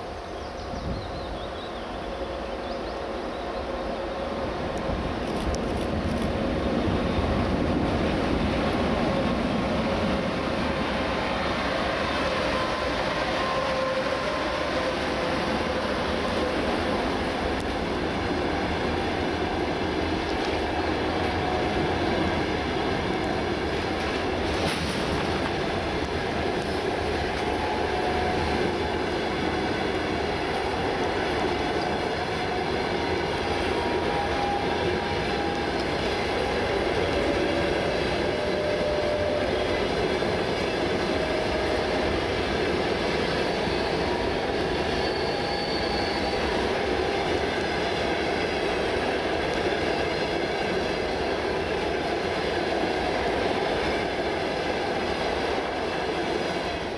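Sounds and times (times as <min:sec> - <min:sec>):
train wheels rumbling on rails: 0:00.0 - 0:56.9
thin wheel squeals: 0:43.3 - 0:46.6.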